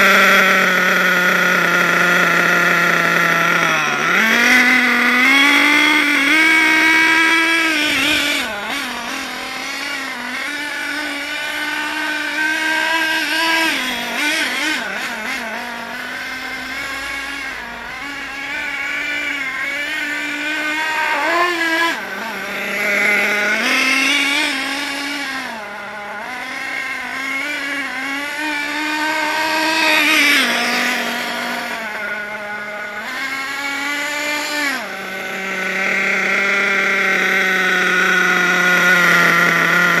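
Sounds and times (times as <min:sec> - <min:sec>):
radio-controlled car engine buzzing: 0:00.0 - 0:40.0.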